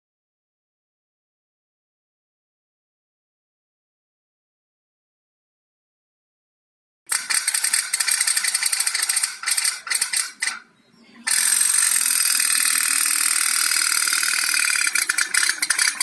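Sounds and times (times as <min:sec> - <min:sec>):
pop-pop boat boiler rattling: 0:07.1 - 0:10.6, 0:11.3 - 0:16.0.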